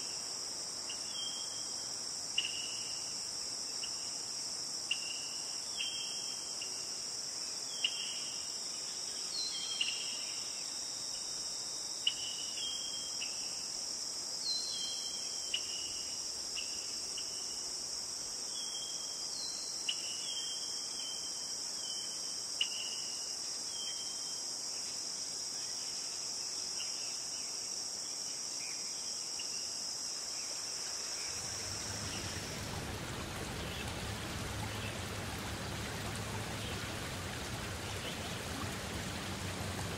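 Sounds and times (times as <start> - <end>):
high-pitched insect chorus: 0.0 - 39.9
rushing water: 30.8 - 39.9.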